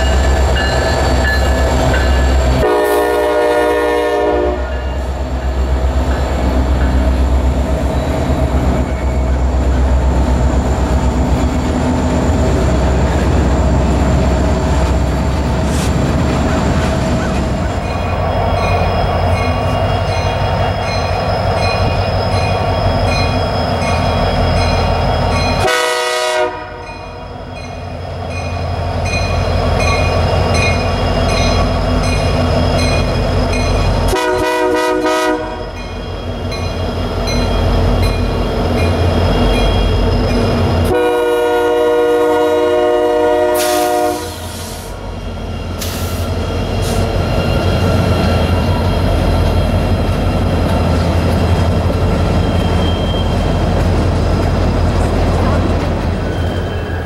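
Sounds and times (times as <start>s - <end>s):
diesel locomotives rumbling: 0.0s - 57.0s
locomotive air horn blasts: 2.6s - 4.9s, 25.6s - 26.9s, 34.1s - 35.7s, 40.9s - 44.9s.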